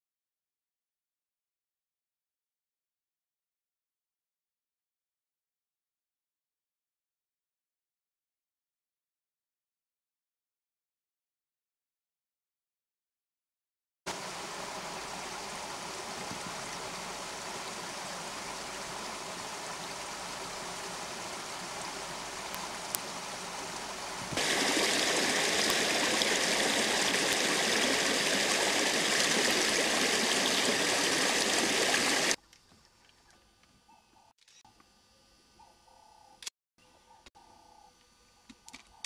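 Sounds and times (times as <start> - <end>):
louder brighter water rush: 14.1 - 32.4
stream water rushing: 14.1 - 32.4.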